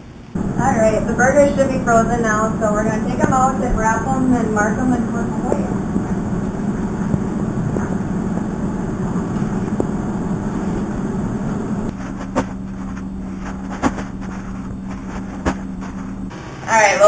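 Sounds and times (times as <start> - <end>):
low appliance hum: 0.0 - 17.0
knocks and rustles of paper: 12.0 - 16.2.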